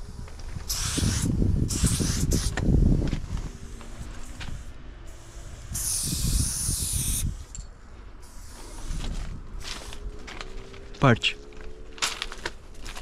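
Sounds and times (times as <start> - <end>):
spray-paint can hissing: 0.6 - 2.6, 3.5 - 7.5, 8.2 - 9.0.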